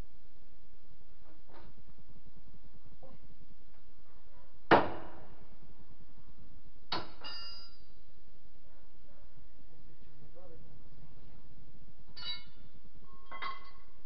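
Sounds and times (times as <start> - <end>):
sharp metal clanks: 6.9 - 7.9, 12.1 - 13.8.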